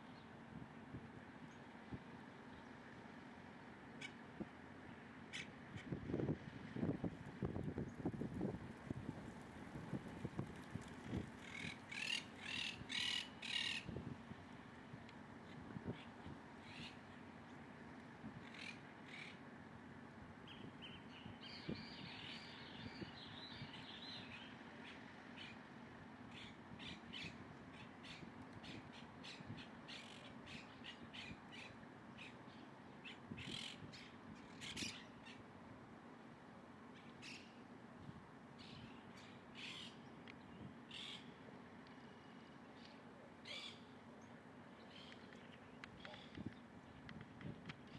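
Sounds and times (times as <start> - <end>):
bird calls and chirps: 11.4 - 13.9, 20.5 - 25.6, 26.3 - 35.4, 37.0 - 37.6, 38.6 - 41.3, 42.3 - 47.0.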